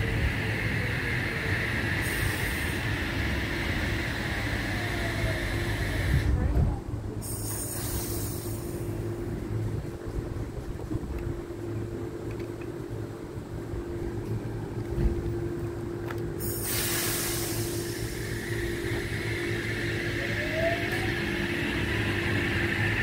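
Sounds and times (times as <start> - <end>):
train cars rushing past: 0.0 - 6.4, 7.0 - 23.0
train hum: 0.0 - 23.0
rising electric whine: 17.4 - 23.0.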